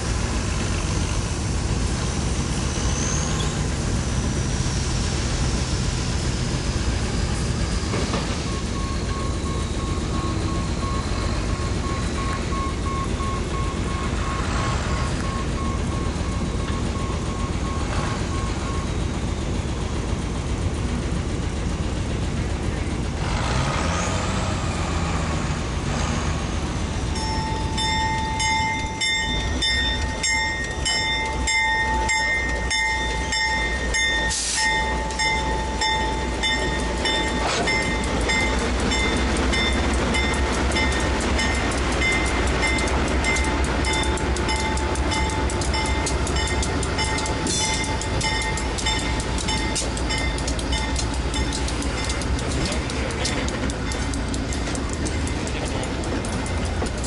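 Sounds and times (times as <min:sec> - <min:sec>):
locomotive engine rumble: 0:00.0 - 0:57.0
faint pulsed beep: 0:08.5 - 0:19.0
locomotive bell ringing: 0:27.0 - 0:57.0.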